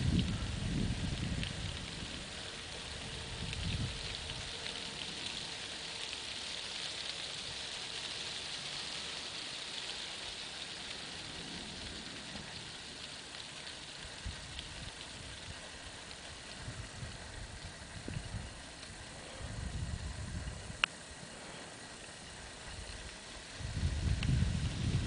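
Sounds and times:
wind rumble on microphone: 0.0 - 5.5, 13.9 - 21.2, 22.2 - 25.0
insects chirring: 0.0 - 25.0.

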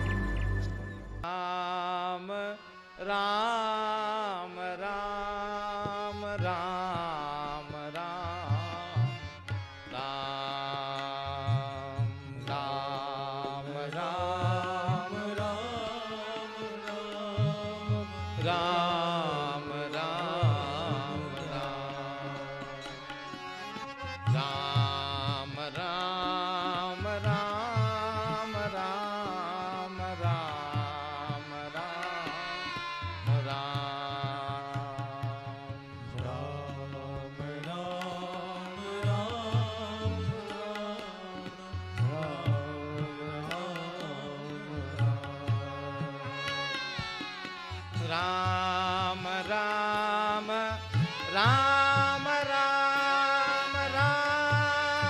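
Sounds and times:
devotional music melody: 0.0 - 4.7.

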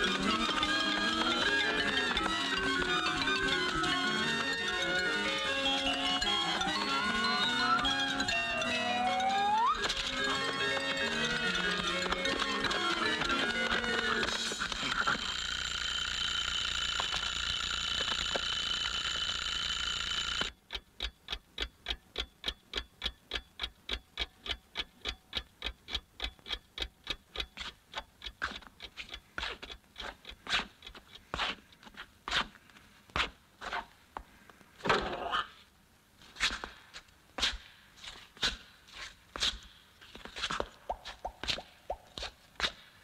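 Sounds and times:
clock ticking: 0.0 - 31.3.

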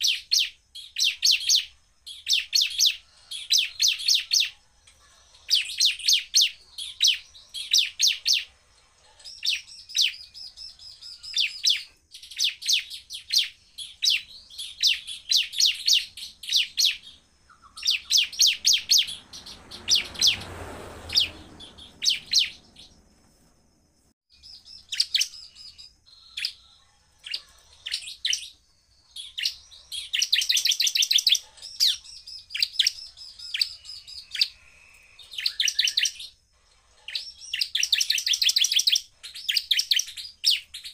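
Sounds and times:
bird singing sharp chattering notes: 9.2 - 20.5, 21.1 - 23.0
low rushing noise: 18.3 - 24.1.

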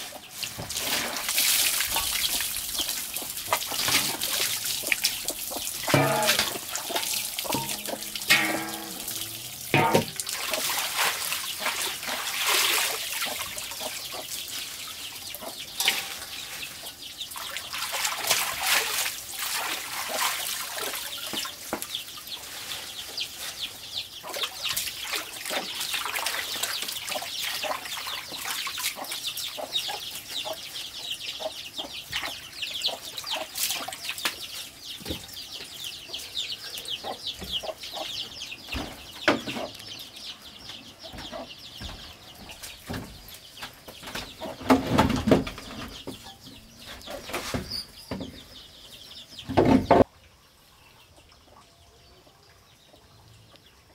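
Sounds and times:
water running from hose: 0.0 - 30.2
splashing water: 0.2 - 22.3, 24.2 - 29.8.

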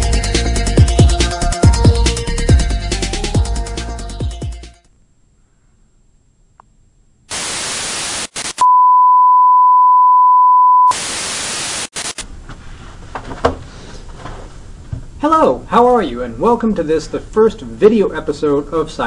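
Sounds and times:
television static hiss: 6.1 - 8.6, 10.9 - 12.3.

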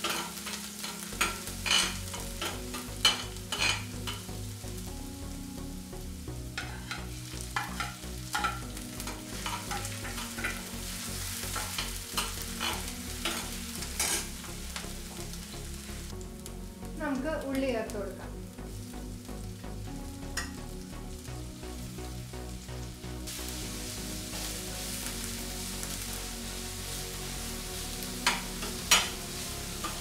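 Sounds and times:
spoon scraping metal pan: 0.0 - 4.3, 6.6 - 10.7, 11.5 - 14.3
food sizzling in oil: 0.0 - 30.0.

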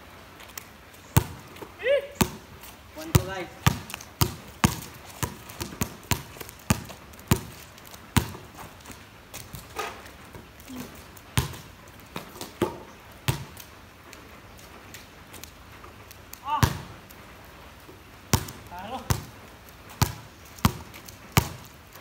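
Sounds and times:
basketball bouncing on concrete: 1.2 - 10.4, 11.4 - 13.6, 16.5 - 17.0, 18.3 - 21.7.

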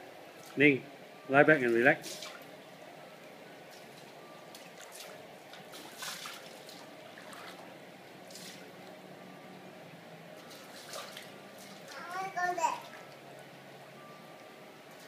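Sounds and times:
gentle wash of water: 4.5 - 7.7, 10.4 - 12.0
child splashing in pool water: 4.6 - 7.6, 10.5 - 13.0.

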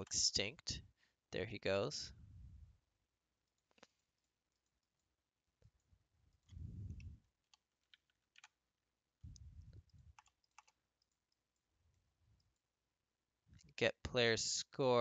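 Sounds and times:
soft low rumbles: 2.1 - 2.8, 5.7 - 7.3, 9.2 - 10.2
keyboard and mouse clicks: 5.6 - 8.6, 9.8 - 11.4.

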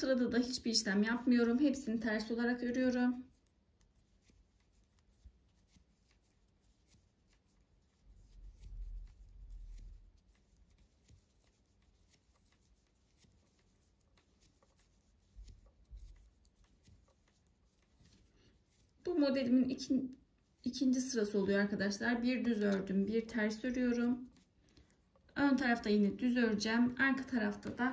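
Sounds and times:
knitting needles clicking: 1.7 - 19.7, 22.2 - 25.9.

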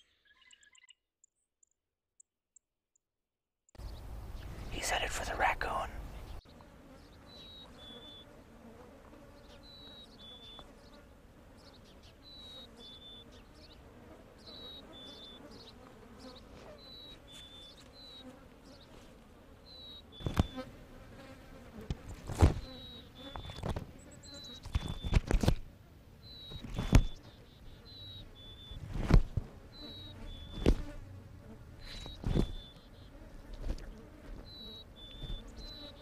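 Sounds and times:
insects buzzing: 3.8 - 36.0.

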